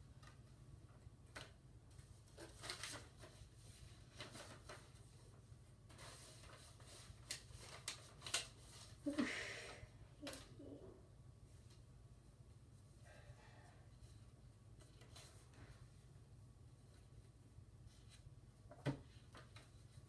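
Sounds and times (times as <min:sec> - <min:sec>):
paper rustling and crinkling: 0:01.3 - 0:09.1.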